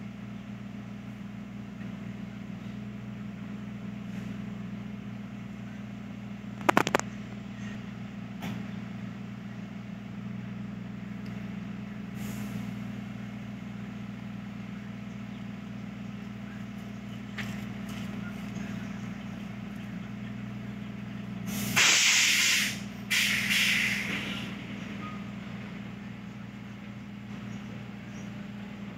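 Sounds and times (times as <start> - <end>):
low mechanical hum: 0.0 - 28.9
sharp clatter: 6.5 - 7.4, 21.7 - 24.5
loud hissing bursts: 21.4 - 24.6.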